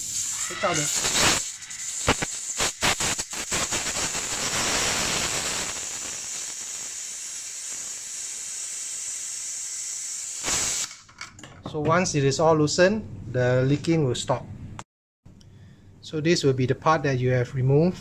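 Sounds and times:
gas hissing from wall outlet: 0.0s - 11.0s.

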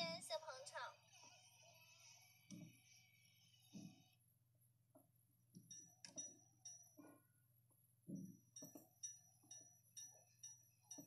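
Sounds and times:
faint ringing clinks and taps: 5.0s - 11.0s.

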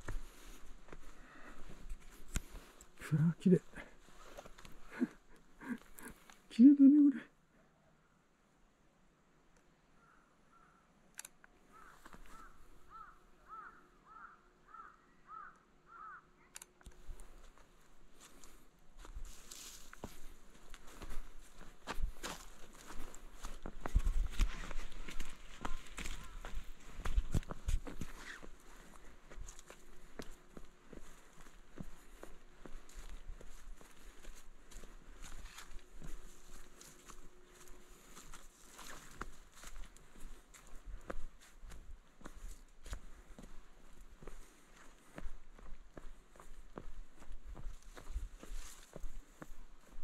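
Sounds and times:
footsteps walking: 0.0s - 6.4s, 11.8s - 13.1s, 16.8s - 50.0s
crow cawing: 10.0s - 10.9s, 11.7s - 16.5s, 25.1s - 26.7s.

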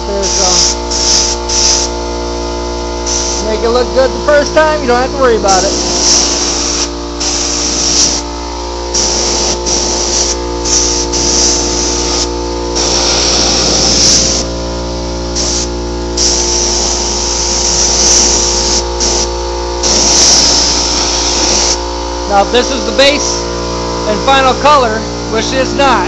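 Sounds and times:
steady hum with held tones: 0.0s - 26.0s
paint spray gun hissing: 0.1s - 2.0s, 3.0s - 3.8s, 4.4s - 8.3s, 8.9s - 14.6s, 15.3s - 23.4s.

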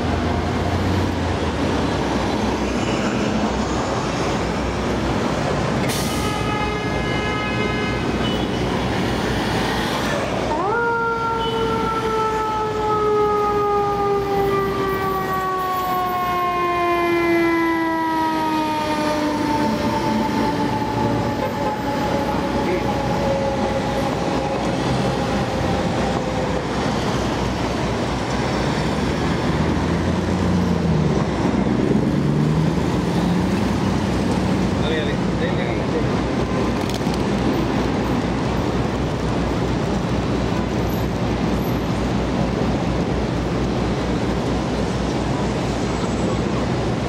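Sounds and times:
city traffic noise: 0.0s - 47.0s
fire engine mechanical siren: 9.6s - 28.4s.

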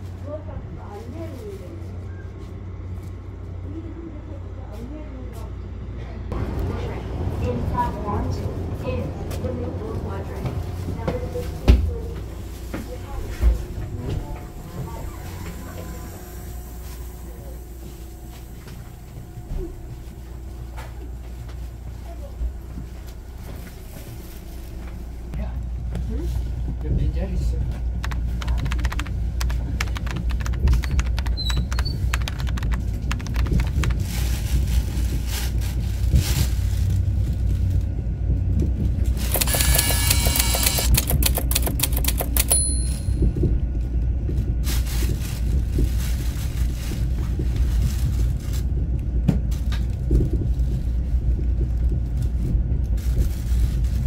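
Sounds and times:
train rumble: 0.0s - 54.0s
train clicking and clatter: 4.8s - 54.0s.

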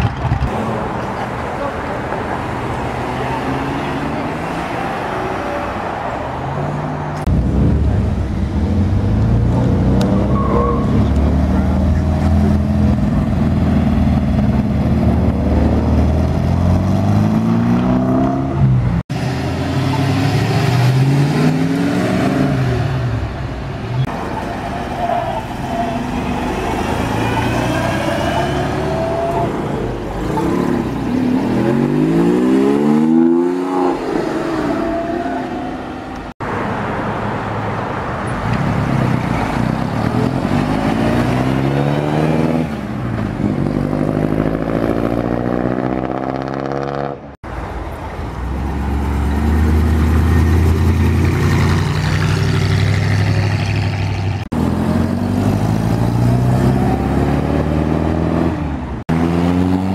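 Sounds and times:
cars accelerating past: 26.0s - 36.8s, 38.4s - 47.3s, 48.6s - 59.9s.

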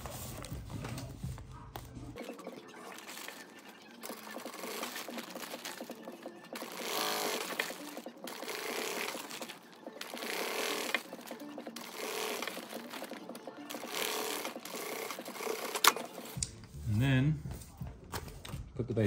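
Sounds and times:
sewing machine stitching: 2.6s - 16.4s.

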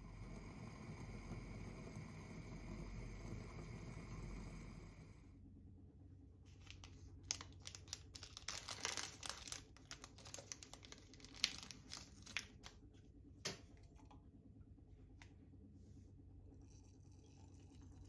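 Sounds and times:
plastic sachet crinkling and tearing: 6.5s - 12.8s.

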